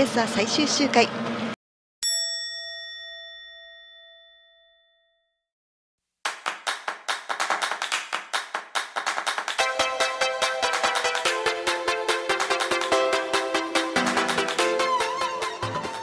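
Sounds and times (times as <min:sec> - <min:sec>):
bell-like ding: 0:02.0 - 0:05.4.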